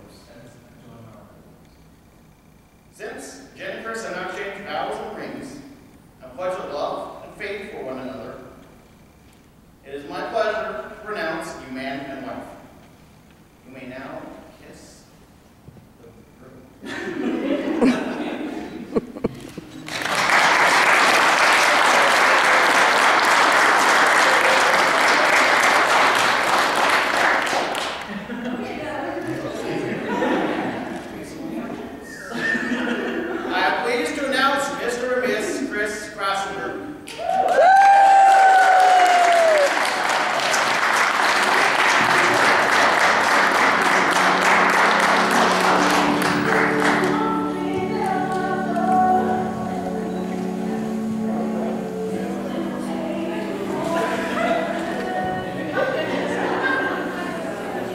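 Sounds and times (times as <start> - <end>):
crowd applauding: 18.9 - 28.3, 37.1 - 47.4
music with long held notes: 42.0 - 57.9.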